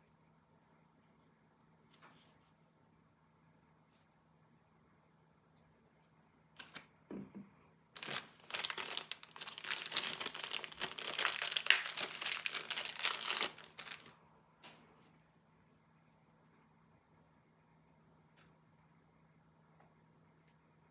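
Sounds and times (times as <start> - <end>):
plastic bag crinkling: 7.9 - 14.2.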